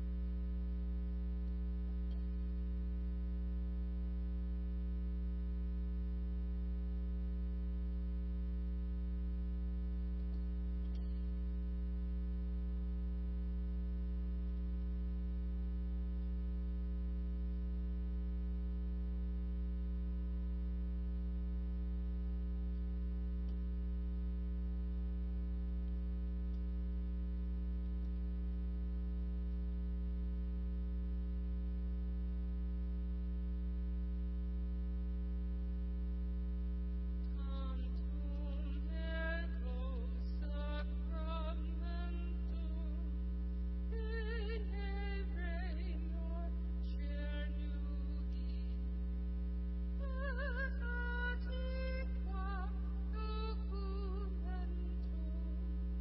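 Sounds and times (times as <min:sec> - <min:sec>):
electrical mains hum: 0:00.0 - 0:56.0
faint click: 0:01.4 - 0:02.6, 0:10.1 - 0:11.6, 0:16.1 - 0:16.5, 0:21.6 - 0:24.0, 0:25.0 - 0:29.7, 0:36.7 - 0:41.4, 0:54.6 - 0:55.3.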